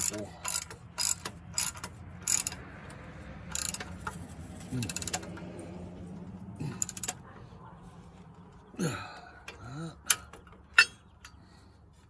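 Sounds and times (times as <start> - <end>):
metal bracket clinking: 10.1 - 11.4.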